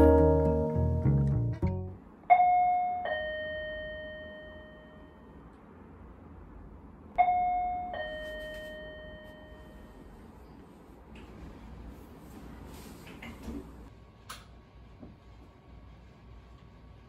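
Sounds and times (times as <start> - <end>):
ding-dong doorbell chime: 2.3 - 5.4, 7.2 - 10.0.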